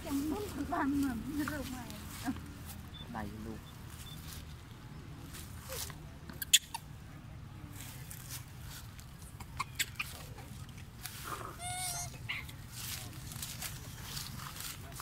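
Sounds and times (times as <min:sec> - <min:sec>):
monkey squealing: 0:06.4 - 0:06.9, 0:09.4 - 0:10.3, 0:11.4 - 0:12.5.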